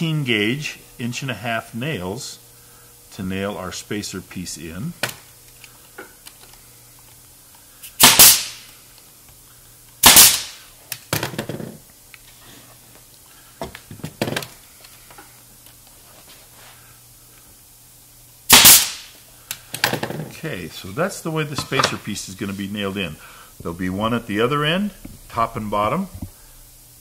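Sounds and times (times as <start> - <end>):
nail gun shots: 8.0 - 8.7, 10.0 - 10.6, 18.5 - 19.1.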